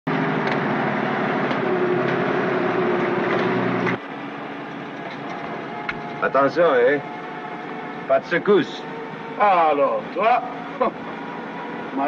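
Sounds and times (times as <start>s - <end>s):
truck engine running: 0.1s - 12.0s.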